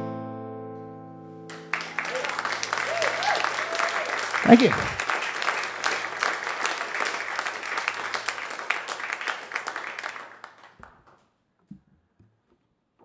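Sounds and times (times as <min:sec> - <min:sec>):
audience applauding: 0:01.5 - 0:11.3.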